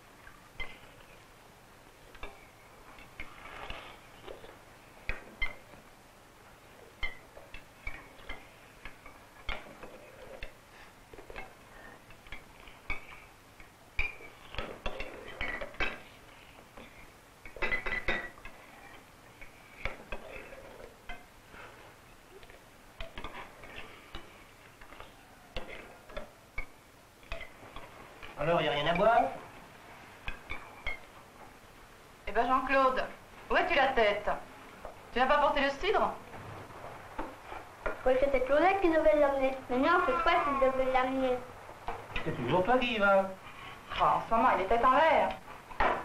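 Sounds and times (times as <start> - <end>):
cutlery clinking on plates: 17.5 - 18.6.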